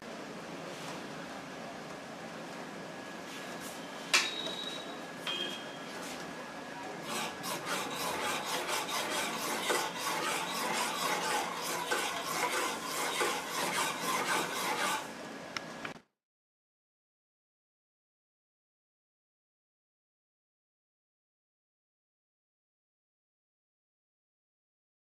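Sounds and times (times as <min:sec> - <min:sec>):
spoon scraping metal pan: 0:07.1 - 0:15.1.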